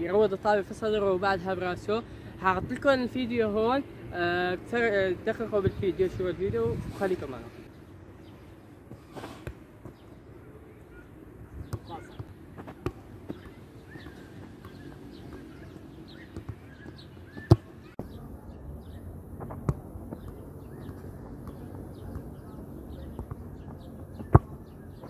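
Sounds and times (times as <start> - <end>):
birds chirping: 7.2 - 25.0.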